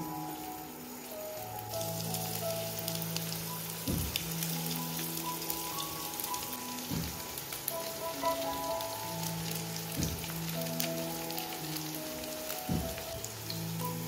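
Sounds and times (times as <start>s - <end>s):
background music with held notes: 0.0s - 14.0s
oil sizzling in a frying pan: 0.0s - 14.0s
soft low thud: 3.9s - 4.3s, 6.9s - 7.2s, 10.0s - 10.3s, 12.7s - 13.0s.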